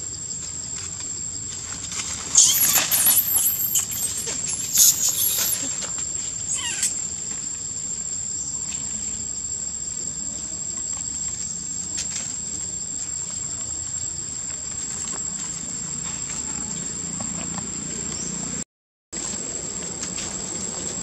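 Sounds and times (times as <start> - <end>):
insect drone: 0.0 - 18.6, 19.2 - 21.0
monkey squealing: 2.4 - 5.9, 6.5 - 7.0.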